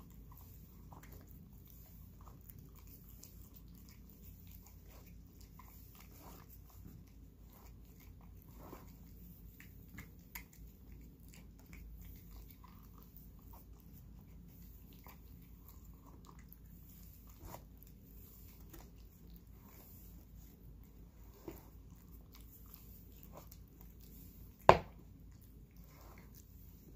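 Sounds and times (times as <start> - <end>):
cat chewing food: 0.0 - 26.9.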